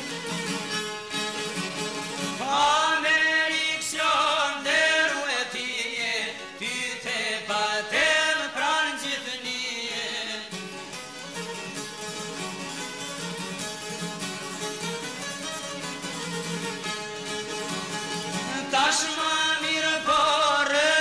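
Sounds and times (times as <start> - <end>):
plucked lutes: 0.0 - 4.9, 9.1 - 21.0
men singing: 2.4 - 10.6, 18.4 - 21.0.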